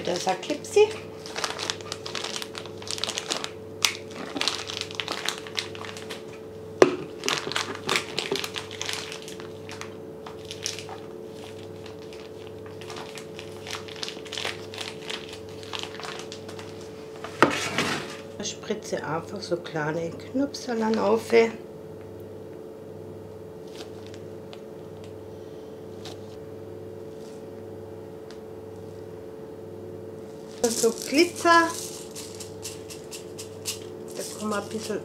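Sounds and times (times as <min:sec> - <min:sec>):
plastic bag crinkling: 0:00.0 - 0:17.4, 0:23.6 - 0:24.6, 0:30.2 - 0:35.0.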